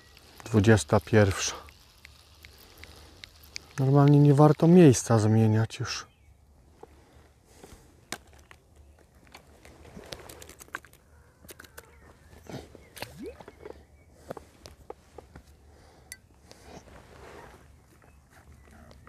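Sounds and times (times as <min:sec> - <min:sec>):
fishing tackle clicks and rustles: 0:08.1 - 0:12.0.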